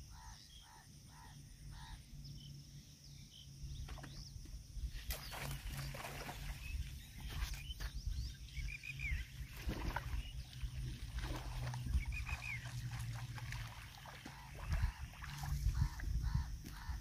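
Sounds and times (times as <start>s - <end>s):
bird chirping: 0.0s - 10.8s
wind rumbling on microphone: 3.8s - 17.0s.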